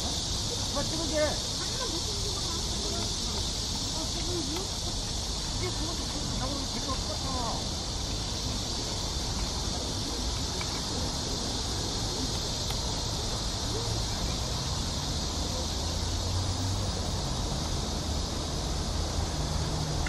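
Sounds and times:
cicadas buzzing: 0:00.0 - 0:20.0.

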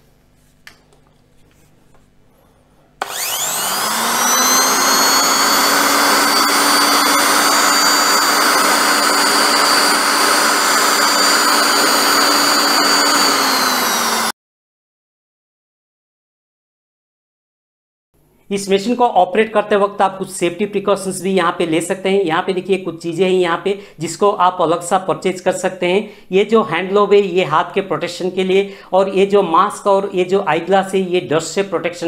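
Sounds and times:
electric drill motor whining: 0:03.0 - 0:14.3.

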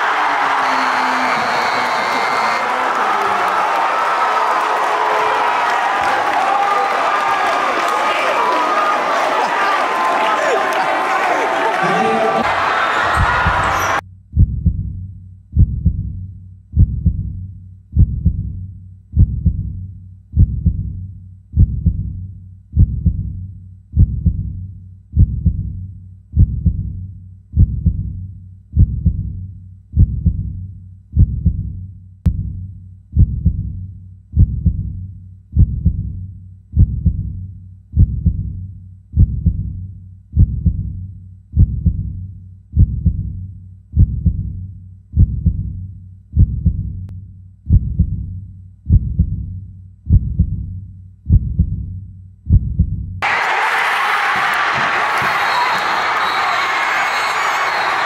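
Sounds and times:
heartbeat thumps: 0:14.3 - 0:21.0, 0:21.6 - 0:27.0, 0:27.6 - 0:29.4, 0:30.0 - 0:31.7, 0:33.2 - 0:33.7, 0:34.4 - 0:36.2, 0:36.8 - 0:37.4, 0:38.0 - 0:38.6, 0:39.2 - 0:39.8, 0:40.4 - 0:41.0, 0:41.6 - 0:42.2, 0:42.8 - 0:43.4, 0:44.0 - 0:44.6, 0:45.2 - 0:45.8, 0:46.4 - 0:47.1, 0:47.7 - 0:48.3, 0:48.9 - 0:49.5, 0:50.1 - 0:50.7, 0:51.3 - 0:51.8, 0:52.5 - 0:53.1.

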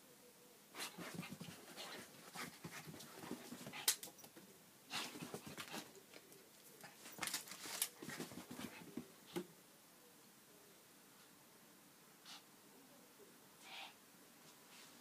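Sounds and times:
dog paws scuffing on mats: 0:00.8 - 0:03.9, 0:06.9 - 0:09.0.

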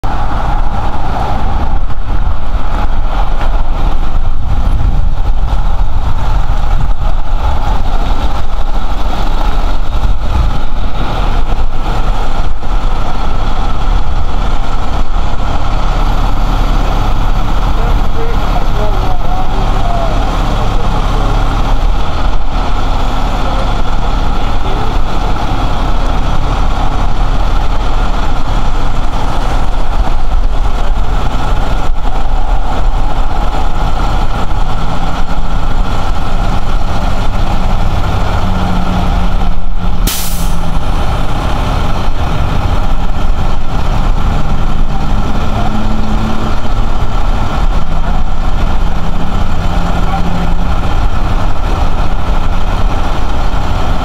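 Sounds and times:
truck engine idling: 0:00.0 - 0:54.0
short hiss: 0:40.1 - 0:40.7.

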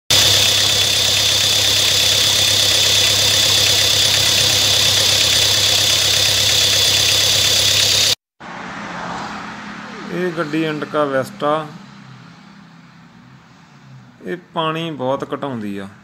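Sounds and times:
car engine idling: 0:00.0 - 0:08.2
high-pitched whine: 0:00.1 - 0:08.2.

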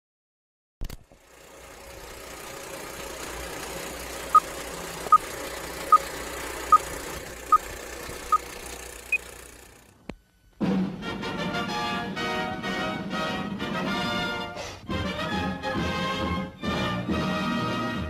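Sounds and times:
film projector whirring: 0:00.8 - 0:10.1.

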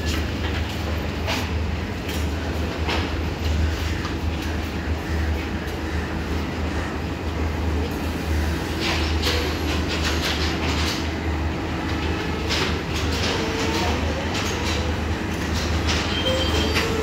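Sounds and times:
train rumbling: 0:00.0 - 0:17.0
wheel clacks over rail joints: 0:08.8 - 0:11.2, 0:11.8 - 0:17.0
high brake squeal: 0:16.1 - 0:17.0.

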